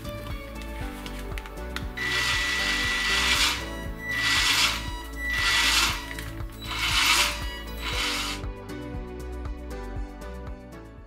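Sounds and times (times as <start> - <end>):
toy car motor whining: 2.0 - 8.4.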